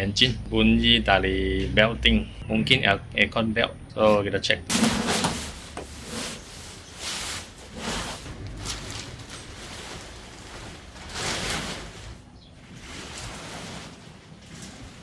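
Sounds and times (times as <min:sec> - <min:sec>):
fabric car cover swishing: 0:05.2 - 0:12.2, 0:12.8 - 0:15.0.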